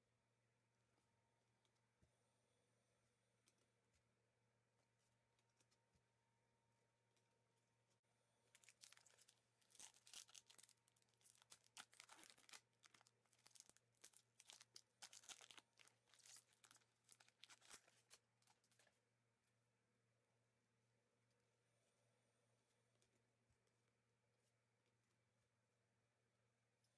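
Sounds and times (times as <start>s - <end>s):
foil wrapper crinkling and tearing: 8.5s - 18.2s.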